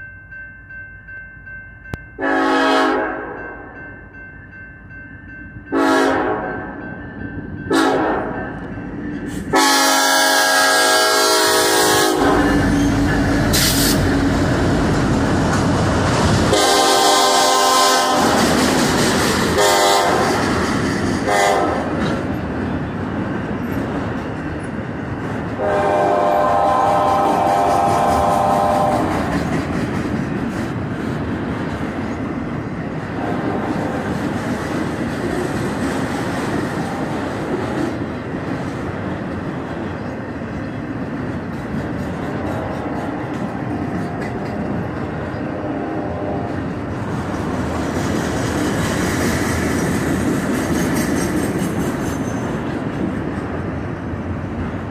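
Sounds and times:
crossing bell ringing: 0.0s - 13.6s
locomotive air horn blasts: 2.2s - 3.4s, 5.7s - 6.7s, 7.7s - 8.4s, 9.4s - 12.8s, 16.5s - 18.4s, 19.6s - 20.4s, 21.2s - 21.9s, 25.6s - 29.2s, 33.2s - 33.8s, 45.5s - 46.6s
train wheel clatter: 18.0s - 25.9s, 26.6s - 45.5s, 46.5s - 54.1s.

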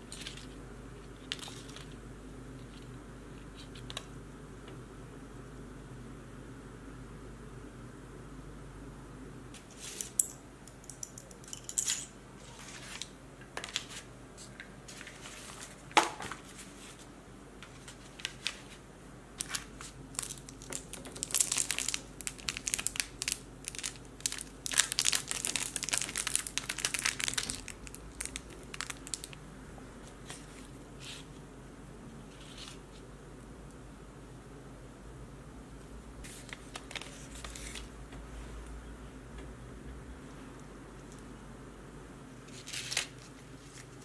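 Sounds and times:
paper crinkling: 12.4s - 18.8s, 19.4s - 29.4s, 36.2s - 38.0s, 42.5s - 44.0s.

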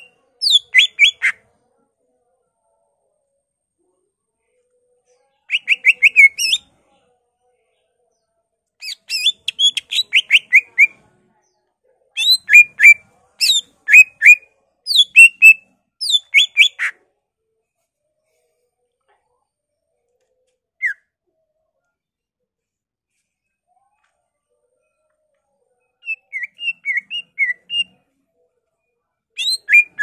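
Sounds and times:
bird singing falling whistled notes: 29.4s - 30.0s.

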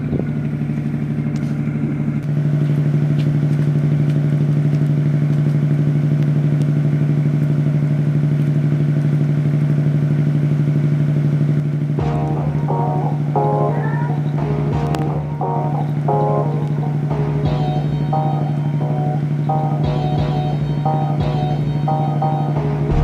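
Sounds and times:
ship engine droning: 0.0s - 23.0s.

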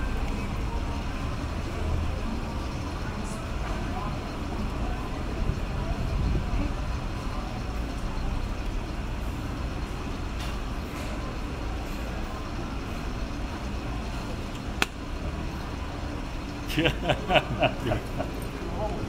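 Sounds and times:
low street rumble: 0.0s - 19.0s
voices: 0.0s - 19.0s
sharp click: 14.6s - 15.0s.

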